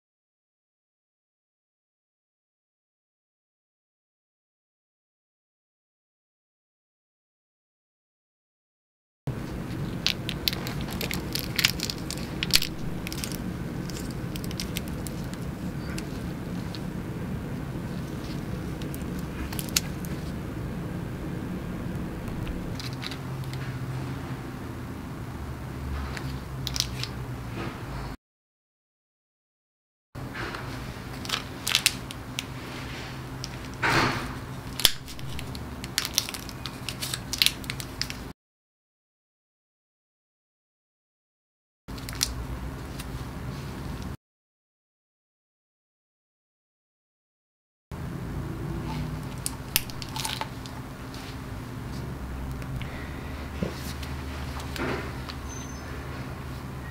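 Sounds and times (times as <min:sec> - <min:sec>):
paper pouch crinkling and tearing: 0:09.3 - 0:17.0, 0:22.0 - 0:23.6, 0:34.6 - 0:38.3, 0:49.0 - 0:51.4
low background hum: 0:09.3 - 0:28.2, 0:30.2 - 0:38.3, 0:48.0 - 0:56.9.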